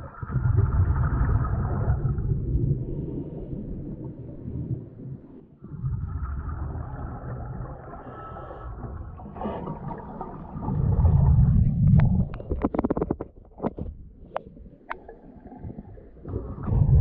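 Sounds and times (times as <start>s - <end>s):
exhaled bubbles rumbling: 0.0s - 17.0s
diver inhaling through regulator: 7.9s - 9.1s.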